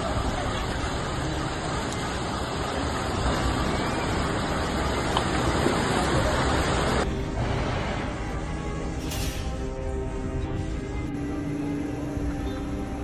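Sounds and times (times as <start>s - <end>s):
fast-flowing floodwater rushing: 0.0s - 7.0s.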